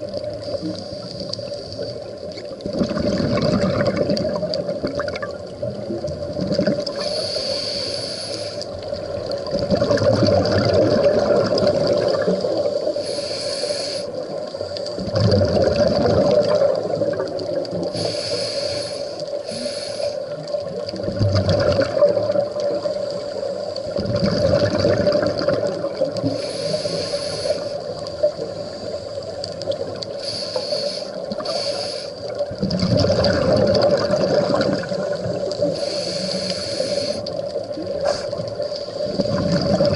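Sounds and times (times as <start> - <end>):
exhaled bubbles gurgling: 0.0 - 7.6, 8.6 - 39.9
regulator hissing inhalation: 6.9 - 8.7, 12.9 - 14.3, 17.9 - 20.4, 26.2 - 29.3, 30.1 - 32.3, 35.6 - 37.4.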